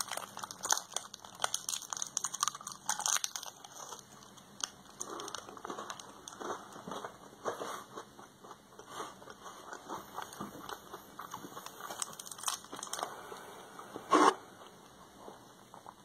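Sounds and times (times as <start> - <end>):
wrapper rustling: 0.0 - 4.0, 11.7 - 13.1
crunchy chewing of wafer bar: 0.0 - 13.5.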